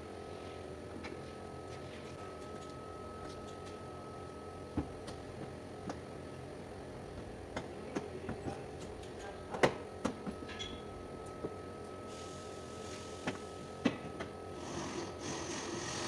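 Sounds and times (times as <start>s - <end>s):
faint high whine: 0.0s - 4.8s.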